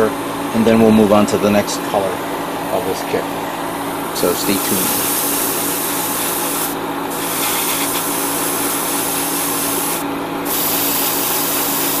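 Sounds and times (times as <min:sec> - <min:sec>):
airbrush hissing: 0:04.1 - 0:12.0.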